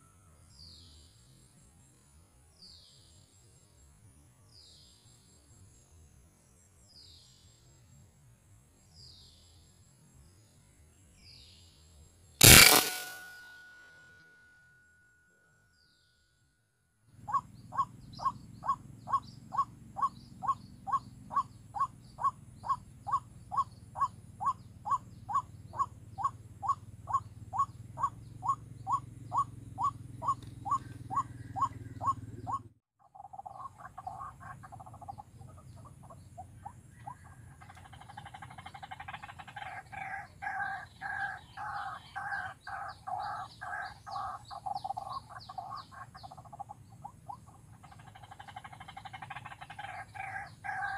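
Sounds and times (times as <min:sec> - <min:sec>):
waterhen calling: 0:47.9 - 0:50.9.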